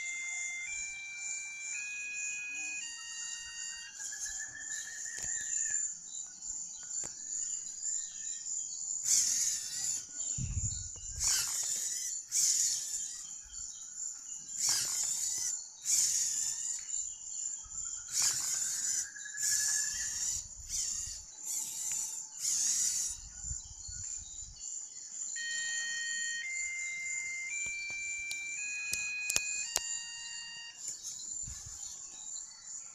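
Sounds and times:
buzzer beeping notes: 0.0 - 4.0, 25.4 - 30.9
servos whirring: 9.0 - 13.2, 14.6 - 16.8, 18.0 - 23.3.

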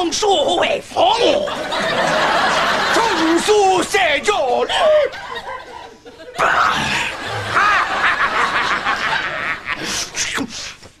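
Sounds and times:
audience laughing: 1.3 - 10.3.

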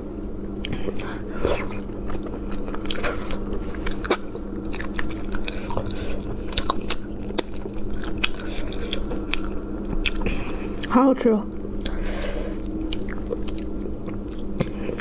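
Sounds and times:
low hum: 0.0 - 15.0
wet chewing and mouth smacks: 0.5 - 11.0, 11.6 - 15.0.

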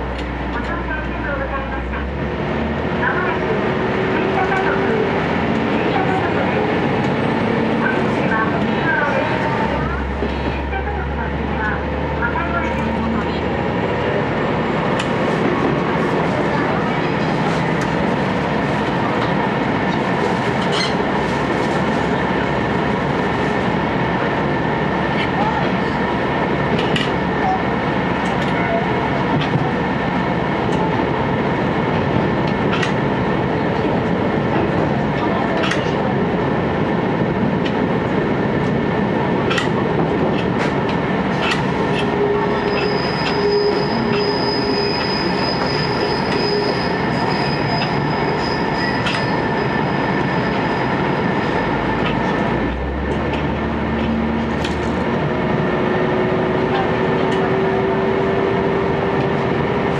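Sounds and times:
railcar engine and wheels rumbling: 0.0 - 59.9
high wheel squeal: 42.1 - 51.3.

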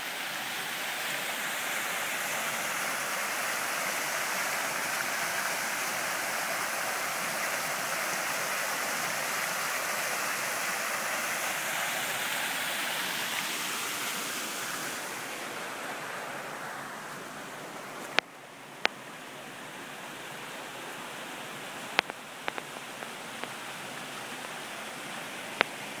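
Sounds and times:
waterfall splashing into pool: 0.0 - 19.1, 20.6 - 26.0
sharp clicks: 22.0 - 22.7.

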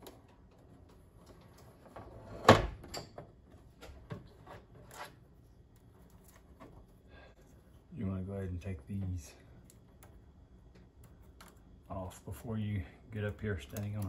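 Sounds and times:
handling clicks and rustles: 9.0 - 14.0.

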